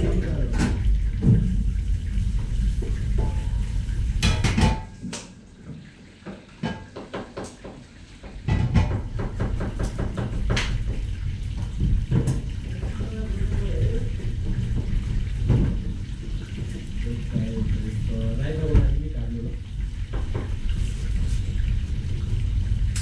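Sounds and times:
dishes and utensils clinking: 4.2 - 5.0, 6.6 - 7.7.

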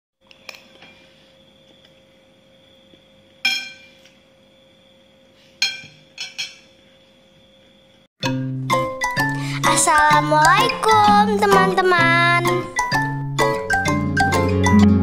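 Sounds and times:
cutlery clinking on ceramic plate: 3.4 - 4.0, 5.6 - 6.7.

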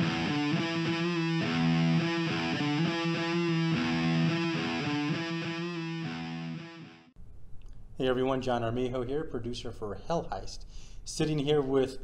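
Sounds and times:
distorted electric guitar chords: 0.0 - 7.1.

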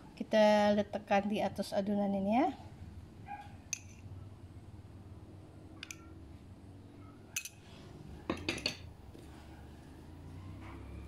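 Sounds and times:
metal spoon clinking ceramic bowl: 3.7 - 4.0, 7.3 - 7.6, 8.3 - 8.9.

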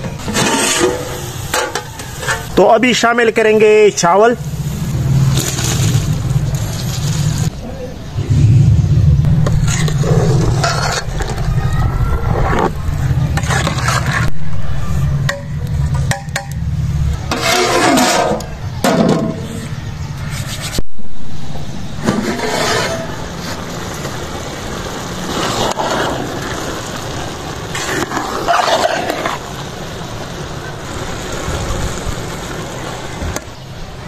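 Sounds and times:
pot of rice boiling and hissing: 0.0 - 34.0
metal ladle scraping and clanking: 0.2 - 2.5, 17.3 - 18.4.

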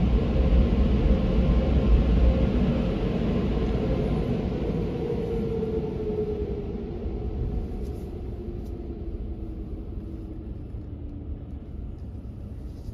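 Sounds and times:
car engine rumble and road noise: 5.0 - 12.9.

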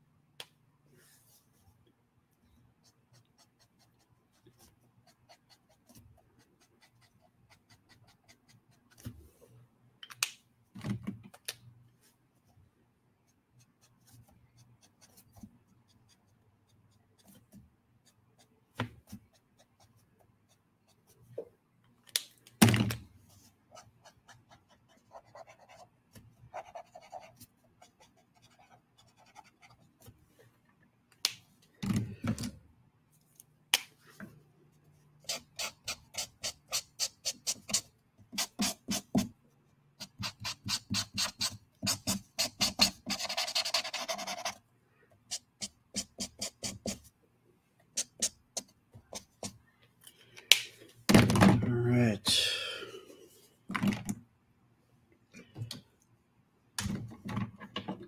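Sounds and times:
marker strokes on paper: 34.7 - 39.3, 40.0 - 44.6, 45.3 - 47.1.

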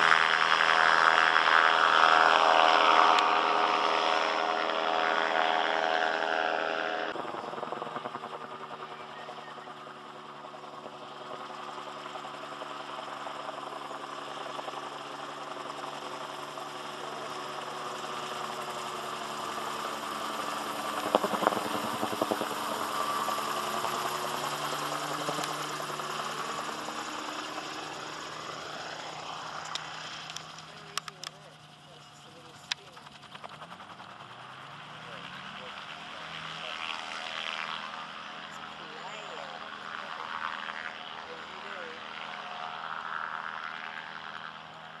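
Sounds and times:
gyrocopter engine drone: 0.0 - 45.0
rotor beating: 10.4 - 37.2.

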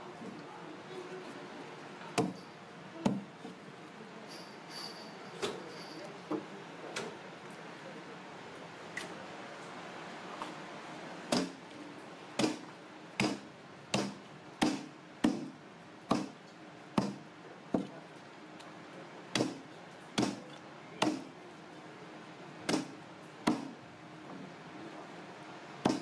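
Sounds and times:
knife chopping on wooden block: 2.2 - 2.4, 13.2 - 15.5, 16.1 - 16.4, 17.0 - 17.2, 19.4 - 19.6, 20.2 - 21.3, 23.5 - 23.7.

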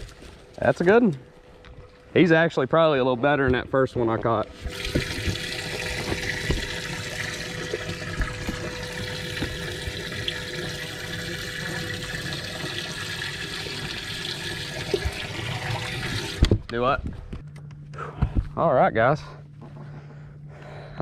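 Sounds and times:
pump motor hum: 4.5 - 16.6
water spraying and pouring: 4.6 - 16.5.

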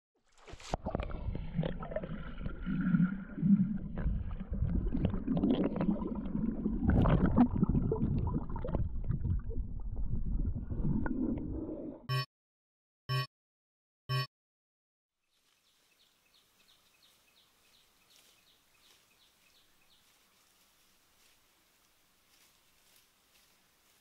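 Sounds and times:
water sloshing and gurgling: 0.2 - 12.1.

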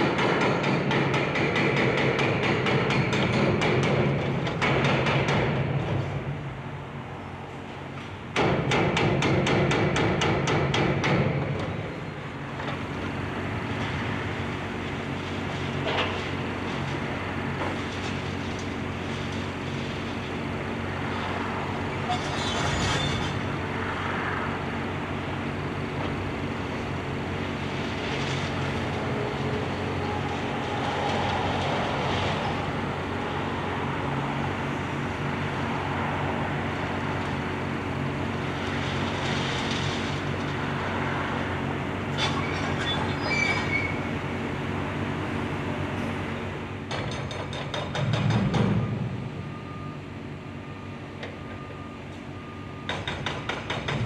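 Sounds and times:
diesel engine running: 11.3 - 47.2, 47.8 - 53.0
concrete and rebar scraping: 22.0 - 23.5, 38.4 - 41.0.

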